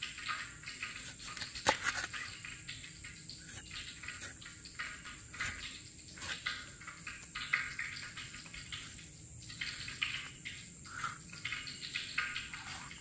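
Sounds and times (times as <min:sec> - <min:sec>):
knife scraping fish: 0:01.0 - 0:02.3, 0:06.2 - 0:06.5, 0:12.6 - 0:13.0.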